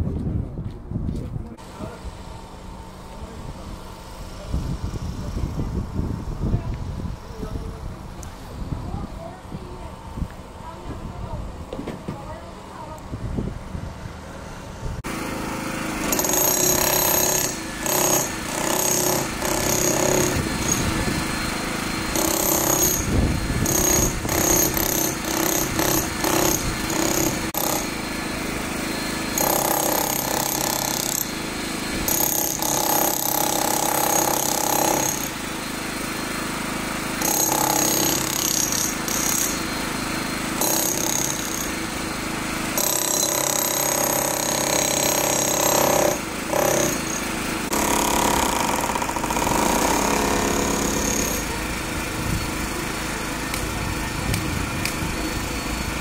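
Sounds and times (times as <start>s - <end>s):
demolition hammer chipping concrete: 15.0s - 56.0s.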